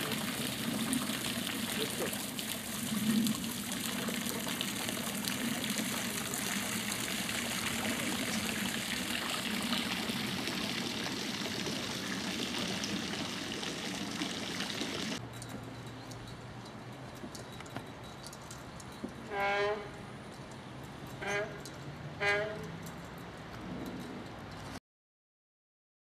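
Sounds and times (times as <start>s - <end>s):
running water rushing: 0.0s - 15.2s.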